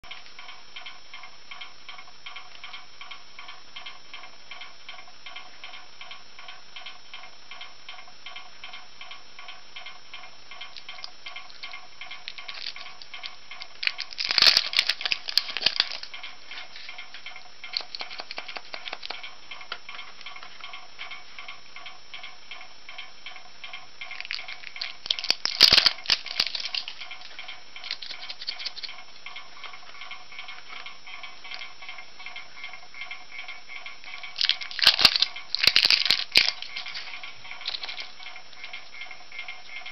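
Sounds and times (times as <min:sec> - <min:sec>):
background music with ticking beat: 0:00.0 - 0:39.9
plastic packaging crackling: 0:10.8 - 0:19.2, 0:24.1 - 0:28.9, 0:34.1 - 0:38.9.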